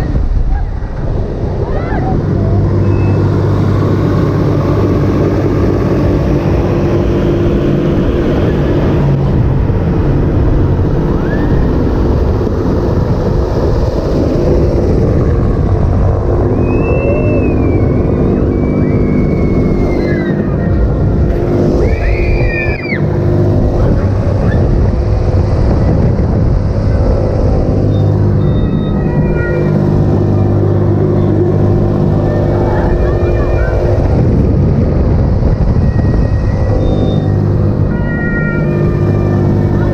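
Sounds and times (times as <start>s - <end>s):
funfair ride rumble: 0.0s - 39.9s
people crying out: 13.6s - 24.8s, 27.1s - 34.5s, 35.3s - 39.9s.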